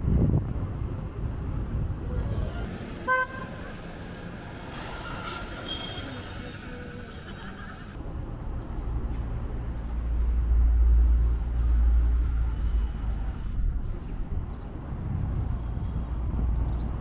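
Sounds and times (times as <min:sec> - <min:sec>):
wind buffeting microphone: 0:00.0 - 0:02.7, 0:12.6 - 0:17.0.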